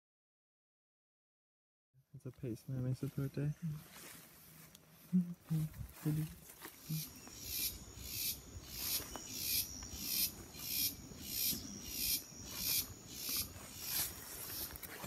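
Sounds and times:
insect buzzy pulses: 0:05.1 - 0:14.8.

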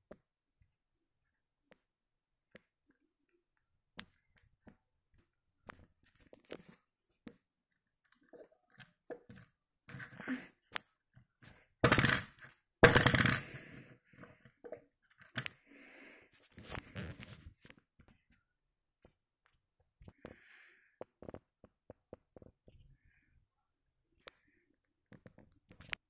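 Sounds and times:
toy car wheels rattling on wood: 0:11.8 - 0:13.6.

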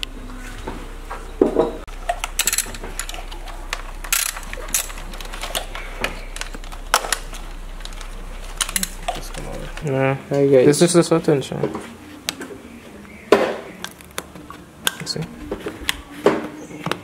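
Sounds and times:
ratchet wrench clicking: 0:02.2 - 0:03.4, 0:04.1 - 0:05.8.

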